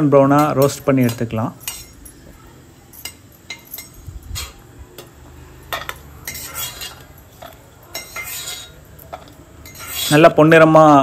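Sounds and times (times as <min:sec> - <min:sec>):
skimmer clinking on steel: 0:00.3 - 0:02.3, 0:02.9 - 0:05.1
skimmer scraping steel pot: 0:05.7 - 0:10.4.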